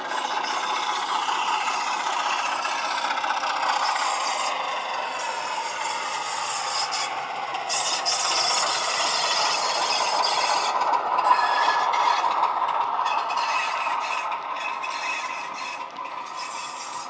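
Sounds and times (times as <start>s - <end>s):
diesel engine sound from small speaker: 0.0s - 17.0s
model train wheels rattling on track: 0.0s - 17.0s.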